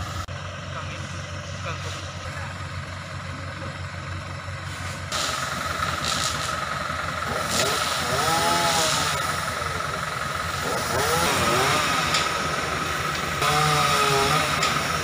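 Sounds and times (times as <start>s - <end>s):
truck engine humming: 0.0s - 15.0s.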